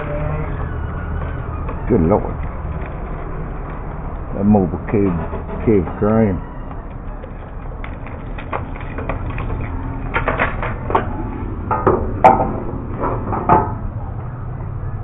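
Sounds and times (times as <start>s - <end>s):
steady low hum: 0.0s - 15.0s
bicycle clicks and rattles: 6.7s - 11.1s.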